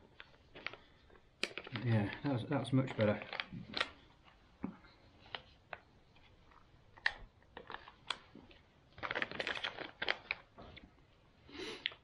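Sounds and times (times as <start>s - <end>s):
food pouch crinkling: 0.1s - 4.0s, 6.5s - 10.6s.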